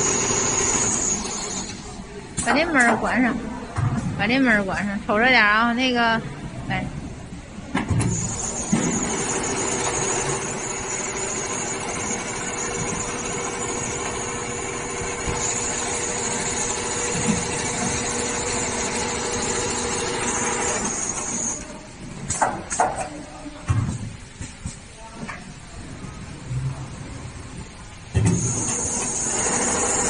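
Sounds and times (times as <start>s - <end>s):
sewing machine whirring: 0.0s - 2.0s, 8.1s - 21.8s, 28.3s - 30.0s.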